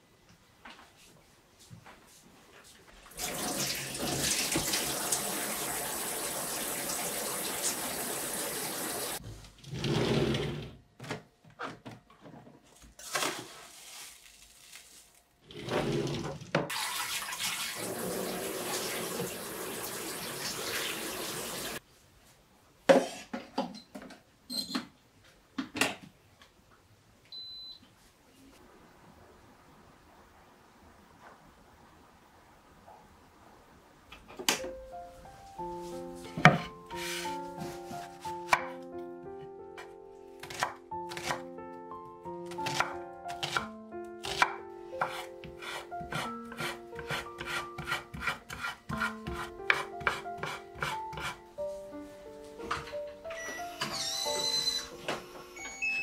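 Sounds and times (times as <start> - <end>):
short high beep: 55.6 - 56.0.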